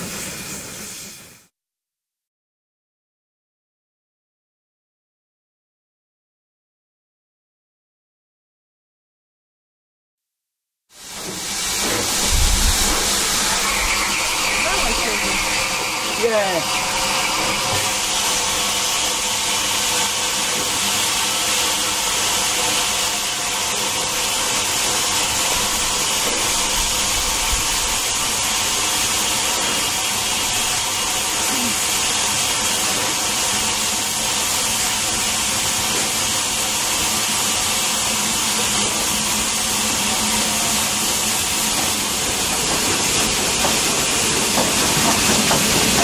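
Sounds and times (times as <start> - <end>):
steam locomotive hissing: 0.0 - 1.5, 10.9 - 46.0.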